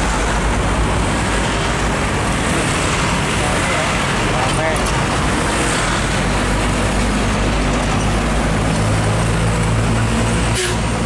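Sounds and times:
road and tyre noise: 0.0s - 11.0s
truck engine low hum: 0.0s - 11.0s.

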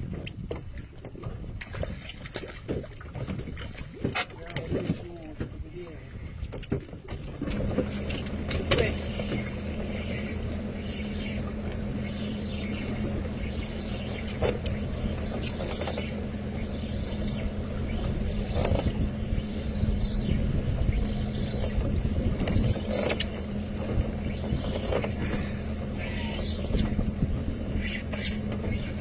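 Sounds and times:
outboard motor humming: 0.0s - 29.0s.

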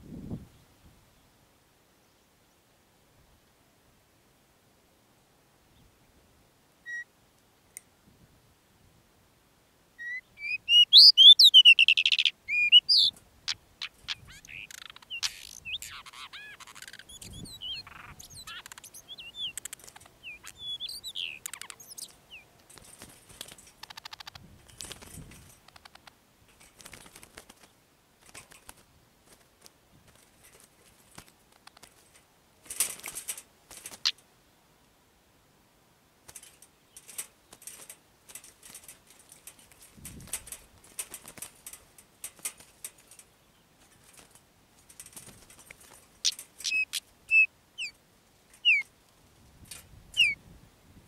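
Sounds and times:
birds chirping: 10.0s - 26.2s, 45.0s - 48.9s, 50.1s - 50.4s
wings and feet rustling on wire: 11.6s - 34.3s, 36.2s - 50.5s.

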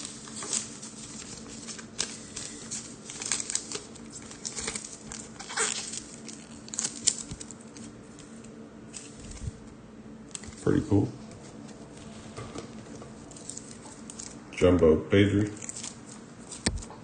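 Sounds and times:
plastic bag crinkling: 0.0s - 8.3s, 12.8s - 14.4s, 15.5s - 16.9s.

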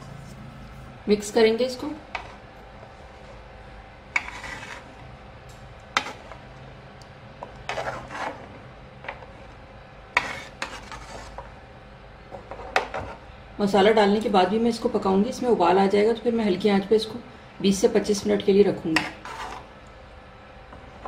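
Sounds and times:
metal spoon scraping a pot: 4.1s - 5.0s, 6.0s - 6.4s, 7.6s - 8.5s, 10.1s - 11.5s, 18.9s - 19.7s.

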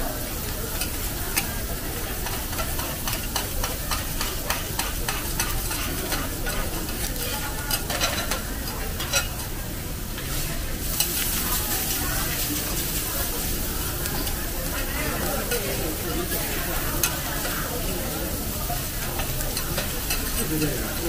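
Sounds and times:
food sizzling on hot plate: 0.0s - 21.0s
metal spatulas scraping on griddle: 2.1s - 9.5s, 18.9s - 20.8s.

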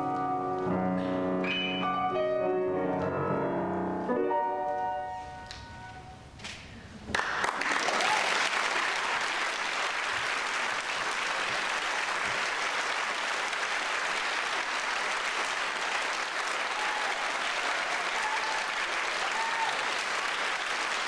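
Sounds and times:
audience applauding: 7.1s - 21.0s.

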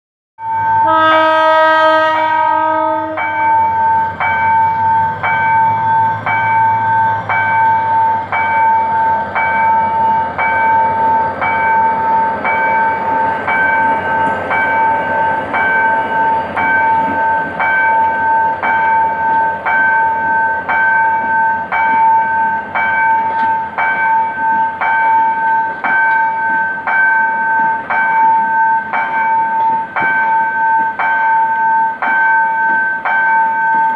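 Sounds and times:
diesel locomotive engine rumbling: 0.4s - 33.9s
train coaches rolling: 0.4s - 33.9s
locomotive horn: 0.8s - 3.5s
level-crossing bell ringing: 3.0s - 33.9s.

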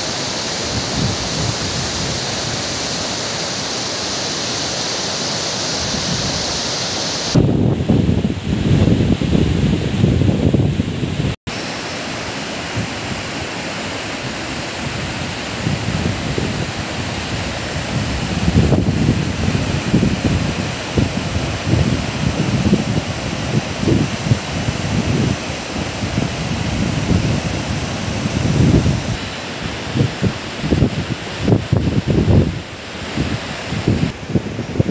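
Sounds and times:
whitewater rapids roaring: 0.0s - 7.4s, 11.5s - 34.9s
wind buffeting microphone: 0.7s - 2.9s, 7.3s - 11.4s, 14.2s - 34.9s.

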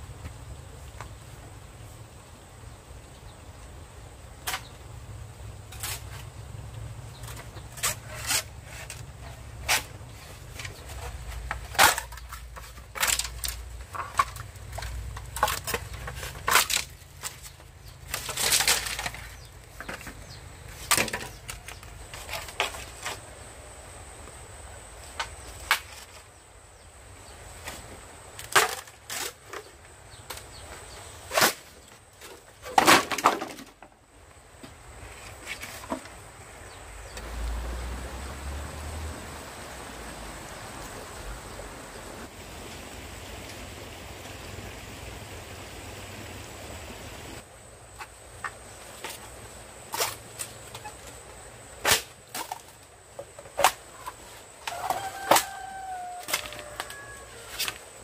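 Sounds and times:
wood knocking and cracking: 10.6s - 23.2s, 31.4s - 34.0s.

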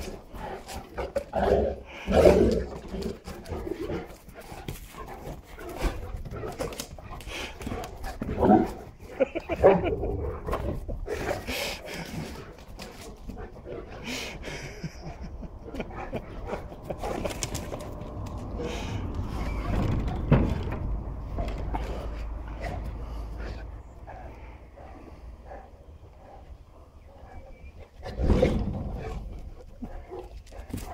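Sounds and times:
dogs vocalizing: 0.0s - 28.3s.

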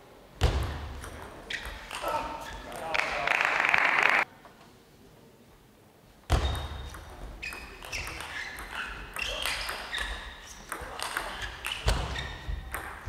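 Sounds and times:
shoes squeaking on floor: 6.3s - 13.0s.

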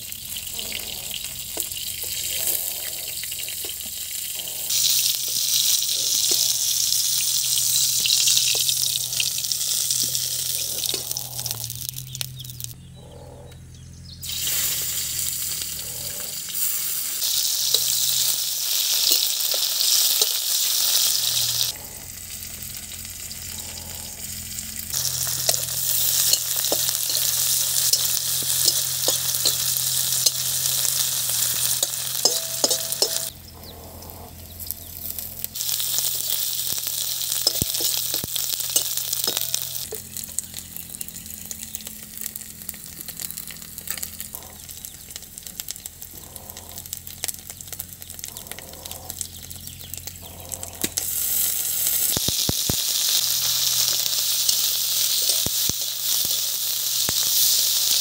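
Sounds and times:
onions sizzling in oil: 0.0s - 12.8s, 14.2s - 33.3s, 34.5s - 46.2s, 46.8s - 58.0s
metal spatula ticking on pan: 25.2s - 33.3s.

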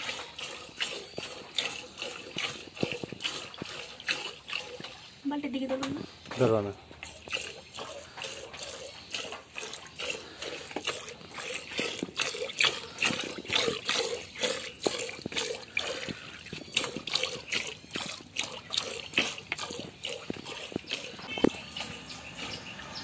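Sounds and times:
milk squirting into bucket: 0.0s - 5.2s, 5.8s - 22.9s.

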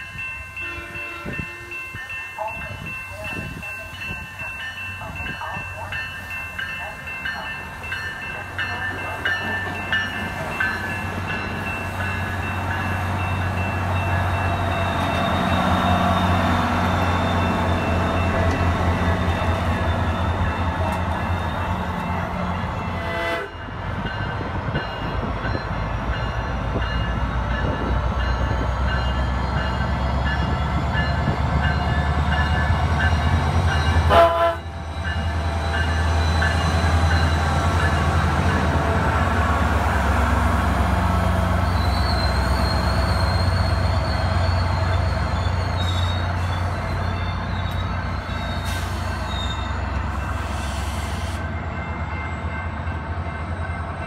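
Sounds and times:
diesel locomotive engine drone: 0.0s - 54.0s
train horn: 0.6s - 1.8s, 22.8s - 23.6s, 34.0s - 34.8s.

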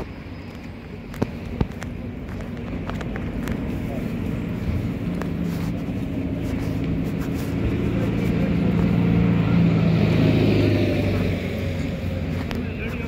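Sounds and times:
vehicle engine humming: 0.0s - 13.0s
hiss of passing traffic: 3.2s - 13.0s.

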